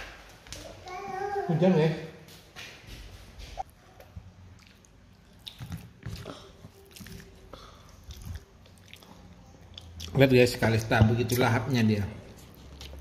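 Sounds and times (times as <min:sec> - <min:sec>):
child chewing: 0:03.6 - 0:10.8, 0:12.2 - 0:13.0.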